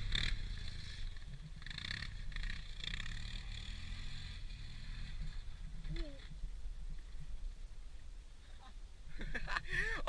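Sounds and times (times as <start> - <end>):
distant off-road vehicle engine: 0.0 - 7.5.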